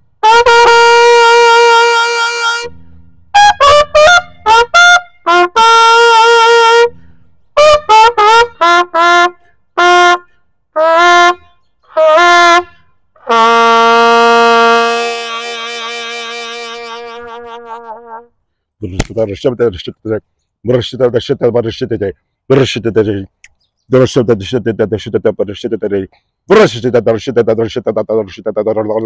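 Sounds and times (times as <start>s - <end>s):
solo trumpet slow melody: 0.0s - 18.4s.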